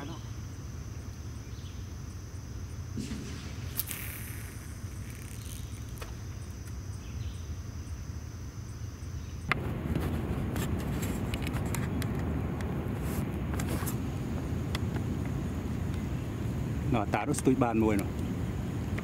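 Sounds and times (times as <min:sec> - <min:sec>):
insect drone: 0:00.0 - 0:19.0
low rumble: 0:03.0 - 0:06.0.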